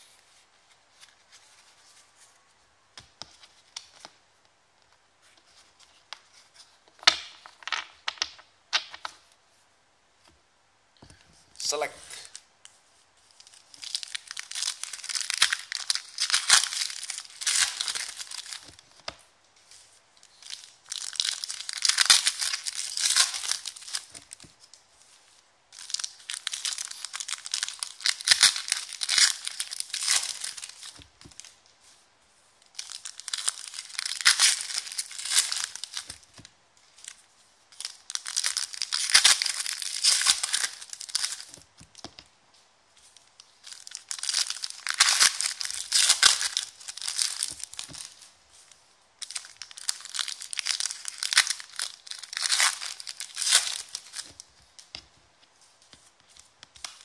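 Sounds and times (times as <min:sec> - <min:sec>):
foil wrappers crinkling and tearing: 0:13.3 - 0:18.9, 0:20.2 - 0:24.8, 0:25.8 - 0:31.6, 0:32.6 - 0:41.6, 0:43.0 - 0:55.0.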